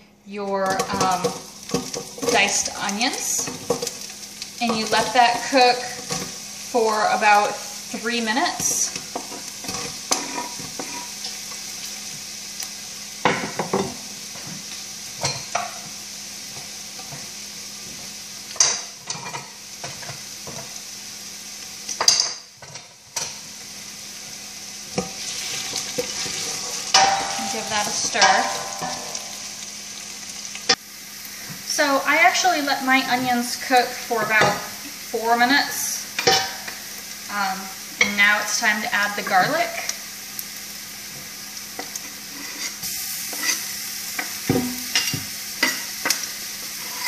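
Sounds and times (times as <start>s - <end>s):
onions sizzling in oil: 0.0s - 47.0s.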